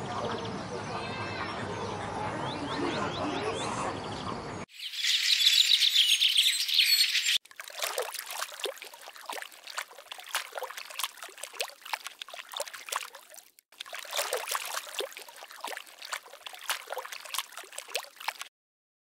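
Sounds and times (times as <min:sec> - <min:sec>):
water bubbling and trickling: 0:04.7 - 0:18.5.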